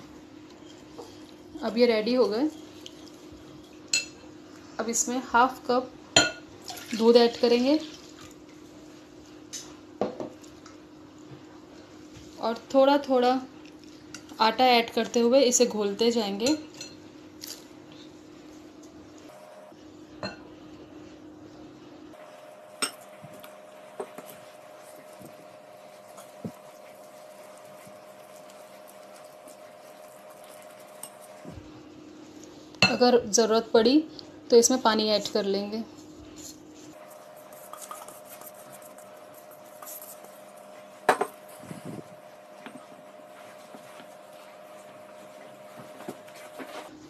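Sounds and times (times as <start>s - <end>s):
steady low hum: 0.0s - 47.0s
spoon stirring in glass bowl: 22.7s - 31.6s, 36.3s - 41.7s.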